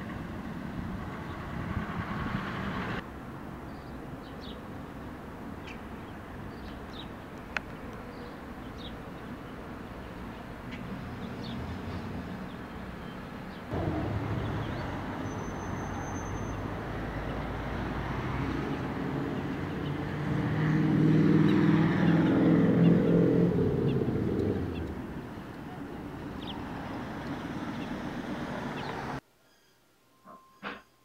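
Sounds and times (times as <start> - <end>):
vehicle rumble: 0.0 - 3.3, 10.6 - 29.2
engine hum: 10.0 - 29.2.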